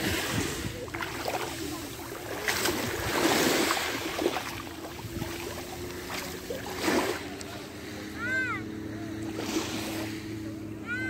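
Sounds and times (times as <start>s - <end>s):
waves washing over pebbles: 0.0s - 7.9s, 8.7s - 10.5s
low steady hum: 0.0s - 11.0s.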